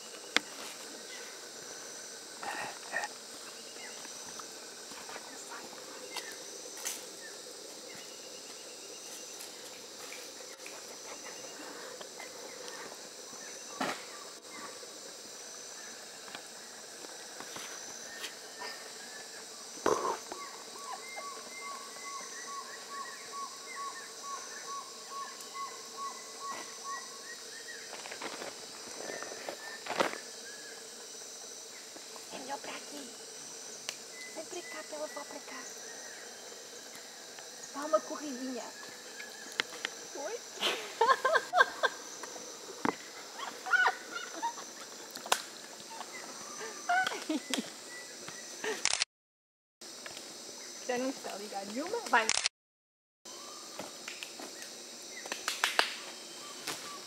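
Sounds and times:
insects droning: 0:00.0 - 0:49.1, 0:49.8 - 0:52.5, 0:53.3 - 0:57.0
birds calling: 0:17.7 - 0:28.1, 0:29.0 - 0:48.6.

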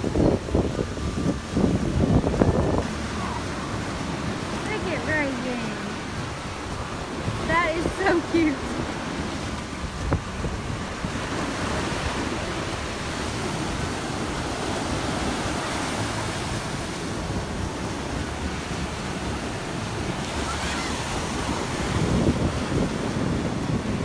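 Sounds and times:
ocean surf on beach: 0:00.0 - 0:24.0
wind rumbling on microphone: 0:00.0 - 0:24.0.

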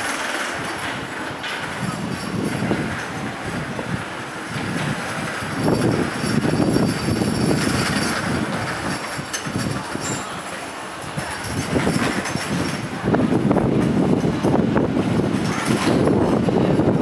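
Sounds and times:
train wheel clatter: 0:00.0 - 0:17.0
high wheel squeal: 0:05.5 - 0:12.9.

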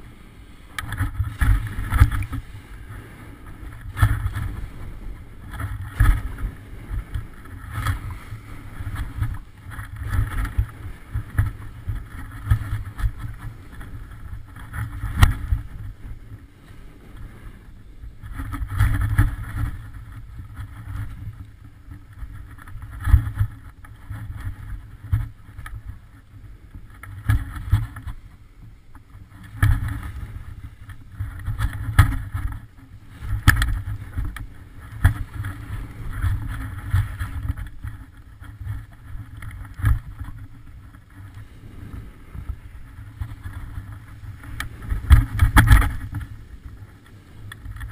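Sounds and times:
skis scraping on snow: 0:00.0 - 0:47.9
wind rumble on microphone: 0:00.0 - 0:47.9.

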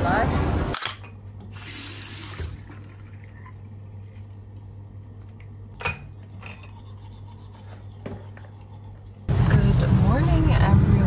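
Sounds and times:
toothbrushing: 0:06.6 - 0:09.3.

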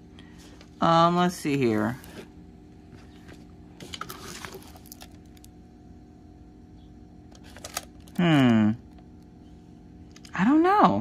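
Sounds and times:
faint steady hum: 0:00.0 - 0:11.0
plastic film clicks and crinkles: 0:03.9 - 0:05.5, 0:07.3 - 0:08.2.

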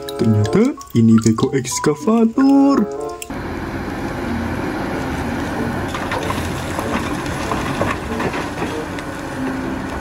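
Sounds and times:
excavator diesel engine running: 0:03.3 - 0:10.0
bucket pouring dirt and rock: 0:05.1 - 0:10.0
falling rock clattering: 0:05.8 - 0:10.0.

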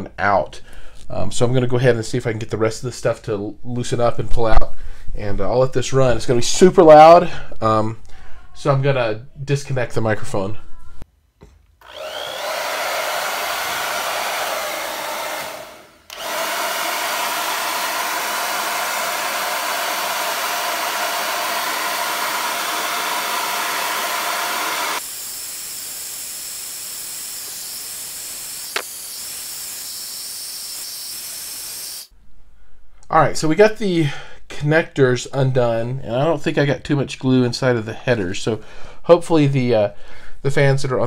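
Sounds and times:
hair dryer blowing: 0:11.8 - 0:32.1.

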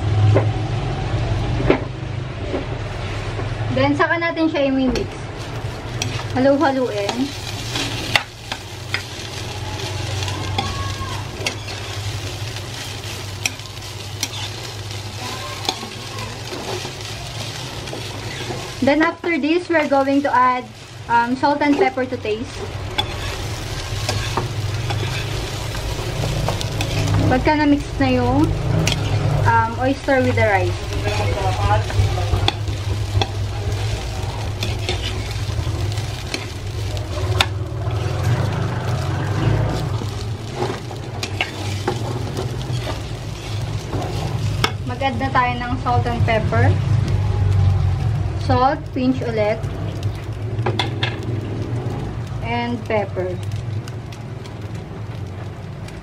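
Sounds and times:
frying sizzle: 0:00.0 - 0:56.0
spatula scraping rice in pan: 0:05.4 - 0:18.9, 0:21.7 - 0:27.4, 0:28.7 - 0:38.4, 0:40.0 - 0:44.8.

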